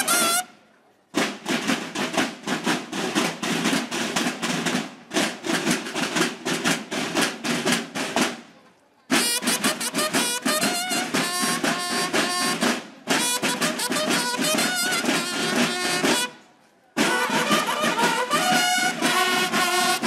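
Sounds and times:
bugles playing: 0:00.0 - 0:00.5, 0:09.1 - 0:16.4, 0:17.0 - 0:20.0
marching snare and bass drums: 0:00.0 - 0:00.5, 0:01.1 - 0:20.0.

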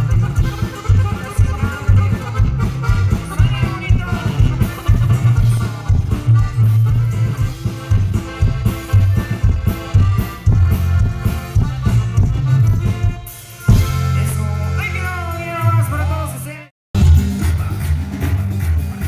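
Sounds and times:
pulsing bass line: 0:00.0 - 0:16.4, 0:17.0 - 0:19.0
drums: 0:00.0 - 0:19.0
live band playing dance music: 0:00.0 - 0:19.0.

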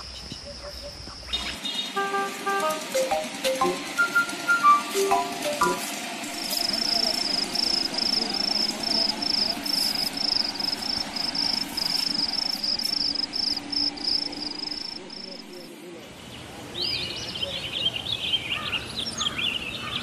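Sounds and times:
low background hum: 0:00.0 - 0:15.9
insect chirping: 0:05.2 - 0:15.7.

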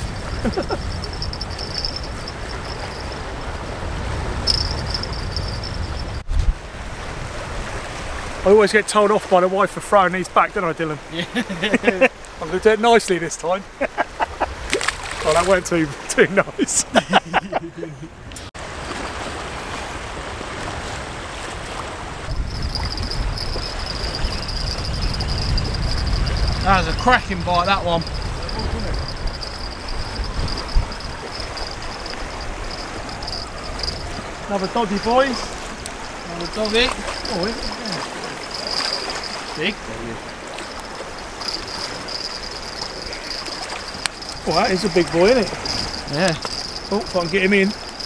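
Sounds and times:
wind rumbling on microphone: 0:00.0 - 0:08.4, 0:18.1 - 0:48.0
choppy sea: 0:00.0 - 0:48.0
thin high-pitched buzz: 0:00.4 - 0:03.2, 0:04.5 - 0:06.2, 0:22.4 - 0:27.1, 0:27.7 - 0:34.2, 0:36.0 - 0:39.6, 0:40.6 - 0:48.0.

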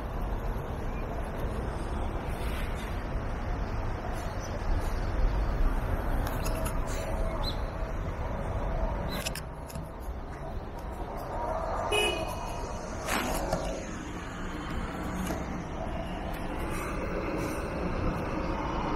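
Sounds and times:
city street traffic: 0:00.0 - 0:18.9
car horn toot: 0:11.9 - 0:12.5.

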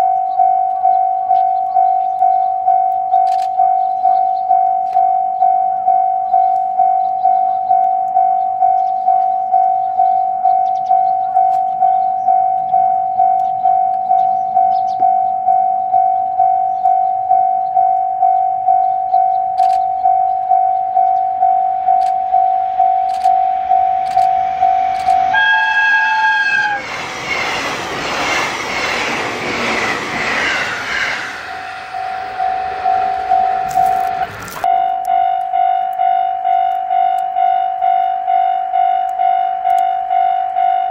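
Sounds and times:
railway crossing bell ringing: 0:00.0 - 0:26.9, 0:31.1 - 0:40.9
train passing with wheel noise: 0:16.2 - 0:40.9
train horn: 0:24.7 - 0:26.9.

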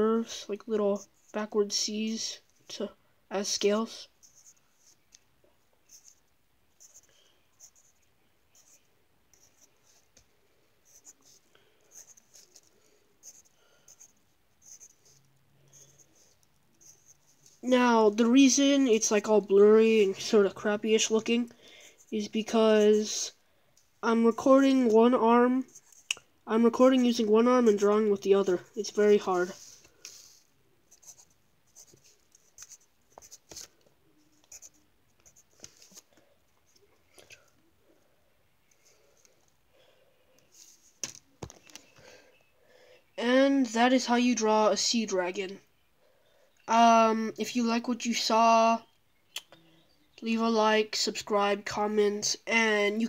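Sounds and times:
pencil scratching on paper: 0:10.8 - 0:17.8, 0:26.8 - 0:33.7, 0:34.3 - 0:36.0.

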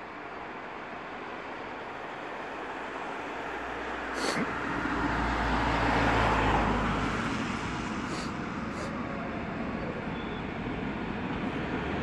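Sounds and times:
vehicle passing rumble: 0:03.2 - 0:12.0.

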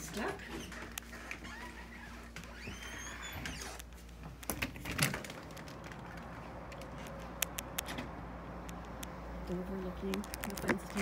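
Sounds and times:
door creaking open: 0:00.3 - 0:03.9.

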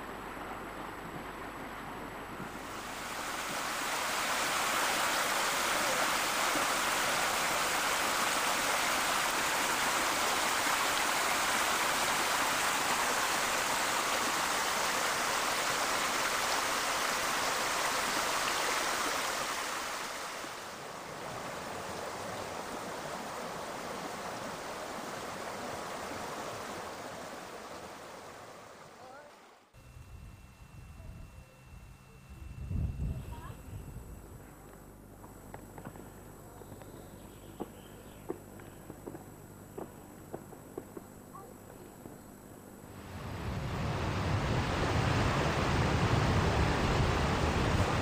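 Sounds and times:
stream cascading over rocks: 0:02.5 - 0:29.5.

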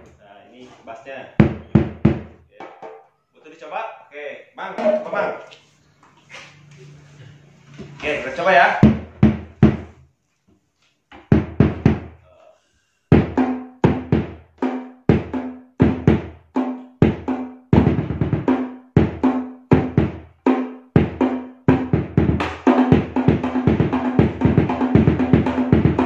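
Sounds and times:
bass drum beaten with mallets: 0:01.4 - 0:03.0, 0:04.8 - 0:05.4, 0:08.8 - 0:09.9, 0:11.3 - 0:12.2, 0:13.1 - 0:14.4, 0:15.1 - 0:16.4, 0:17.0 - 0:20.3, 0:21.0 - 0:26.0
hand drum played by hand: 0:21.7 - 0:26.0.

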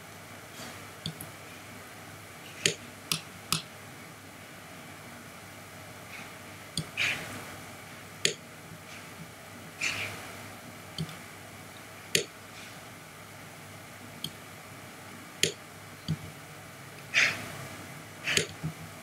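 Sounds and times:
faint low hum: 0:00.0 - 0:19.0
computer mouse and keyboard clicks: 0:11.0 - 0:11.2, 0:18.3 - 0:18.7.

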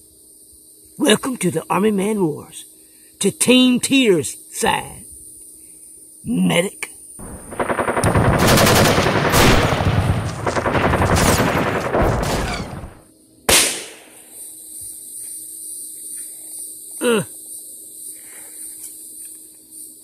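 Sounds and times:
firecrackers cracking: 0:07.2 - 0:14.0
loud bang: 0:09.0 - 0:13.0.

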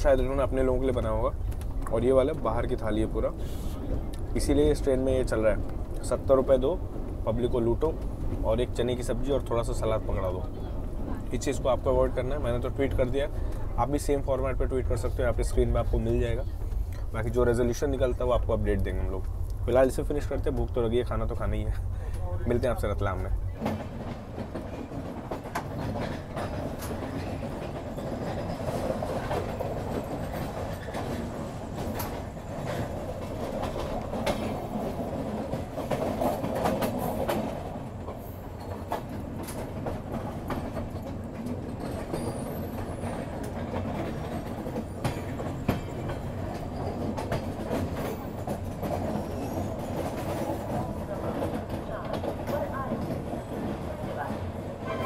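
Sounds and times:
train wheels rumbling on track: 0:00.0 - 0:55.0
wheels clacking over rail joints: 0:00.1 - 0:55.0.

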